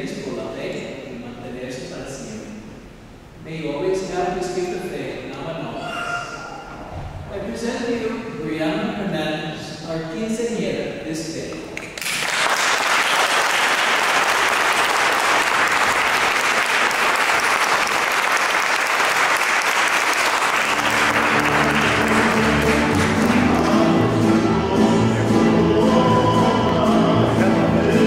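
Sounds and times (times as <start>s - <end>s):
audience applauding: 11.8s - 25.3s.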